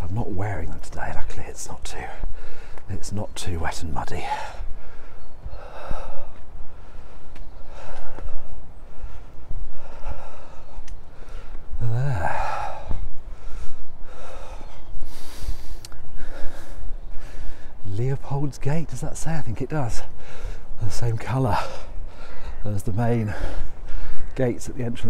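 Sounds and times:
man breathing hard: 2.2s - 2.9s, 4.2s - 17.8s, 20.0s - 20.8s, 21.5s - 22.6s, 23.2s - 24.4s.

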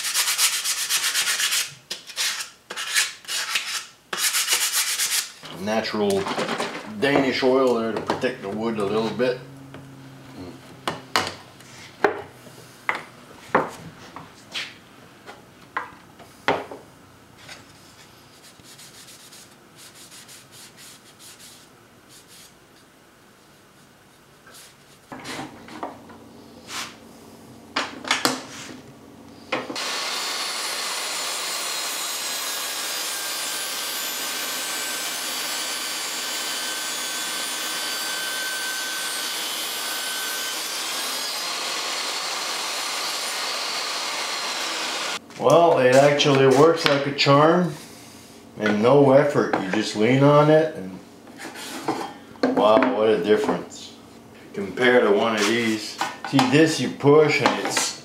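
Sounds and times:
table saw cutting wood: 6.9s - 12.6s, 29.8s - 45.2s.

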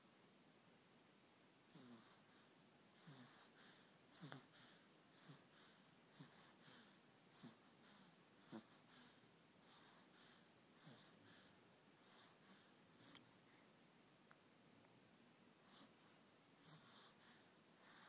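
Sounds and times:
baby breathing softly: 2.0s - 13.8s, 15.6s - 18.0s.

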